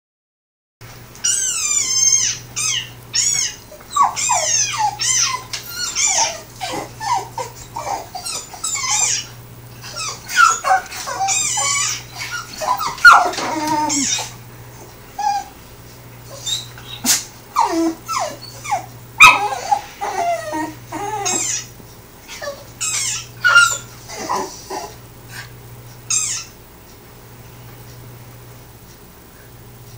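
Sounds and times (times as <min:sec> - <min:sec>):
steady low hum: 0:00.8 - 0:29.9
dog whining and yipping: 0:01.2 - 0:14.4, 0:15.2 - 0:15.6, 0:16.3 - 0:25.0, 0:26.1 - 0:26.6
frog squeaks from tv: 0:01.3 - 0:03.6, 0:26.1 - 0:26.6.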